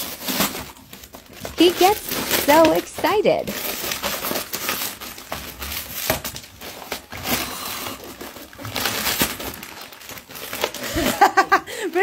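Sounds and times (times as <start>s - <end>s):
dog tearing wrapping paper: 0.0s - 12.0s.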